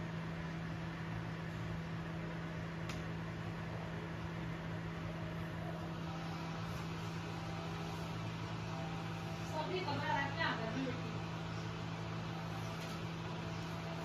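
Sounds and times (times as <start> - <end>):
low mechanical hum: 0.0 - 14.0.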